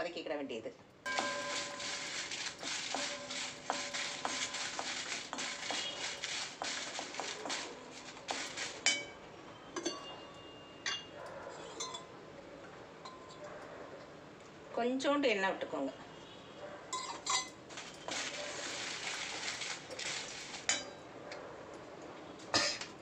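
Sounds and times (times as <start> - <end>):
metal cookware clinking: 1.1 - 12.2, 13.0 - 13.4, 16.9 - 21.1, 22.5 - 23.0.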